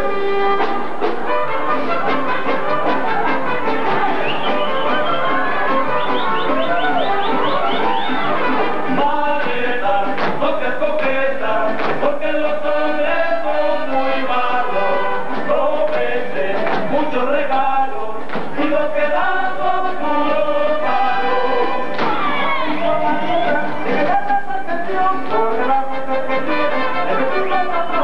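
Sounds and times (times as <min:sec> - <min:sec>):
instrumental accompaniment: 0:00.0 - 0:17.2
group of voices singing: 0:02.1 - 0:28.0.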